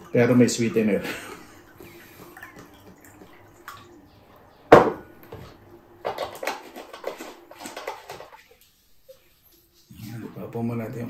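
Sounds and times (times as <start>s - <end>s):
glass set down on wooden table: 4.7s - 5.4s
juice carton clicks and rattles: 6.1s - 8.4s.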